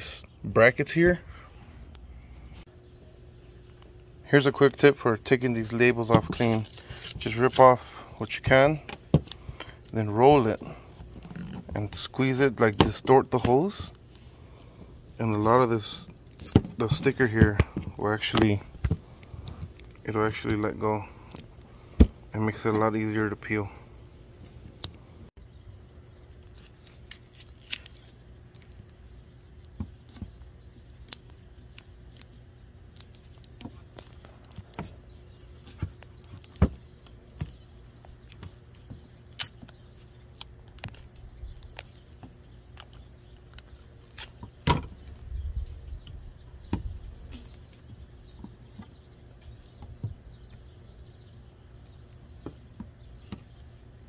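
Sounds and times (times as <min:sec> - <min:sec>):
sticker label being peeled: 0:26.4 - 0:30.2, 0:42.7 - 0:44.4.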